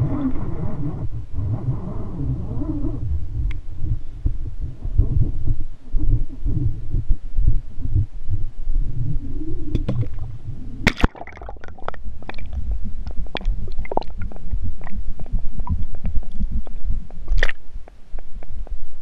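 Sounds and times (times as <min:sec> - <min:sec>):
muffled underwater gurgling: 0:00.0 - 0:18.7
underwater clicks: 0:09.7 - 0:10.3, 0:10.9 - 0:18.8.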